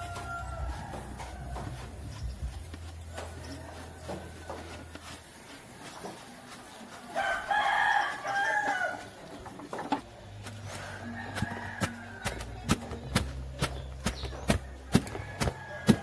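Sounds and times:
rooster crowing: 0.0 - 1.9, 7.2 - 9.1, 10.8 - 12.4, 15.0 - 16.0.

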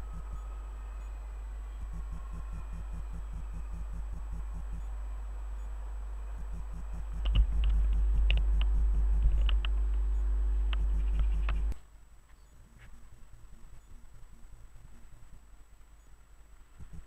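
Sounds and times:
steady low hum: 0.0 - 17.0
wind on microphone: 6.4 - 10.1.

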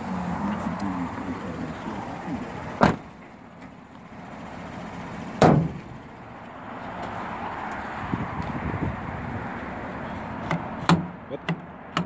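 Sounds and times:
truck doors being shut: 2.6 - 3.8, 5.3 - 6.0, 10.4 - 12.0.

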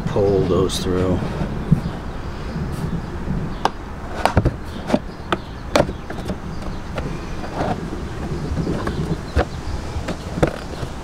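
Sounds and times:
low outdoor rumble: 0.0 - 11.0
plastic panel clicks and knocks: 3.6 - 11.0.

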